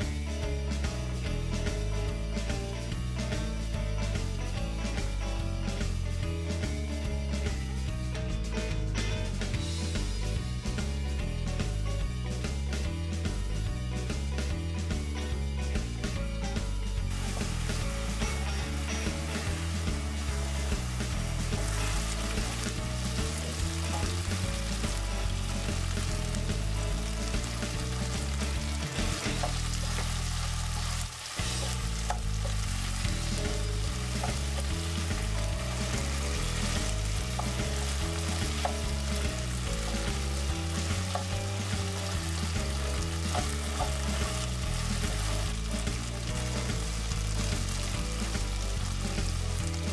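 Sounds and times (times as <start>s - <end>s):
chicken sizzling in oil: 0.0s - 49.9s
wooden spatula scraping a wok: 17.1s - 48.6s.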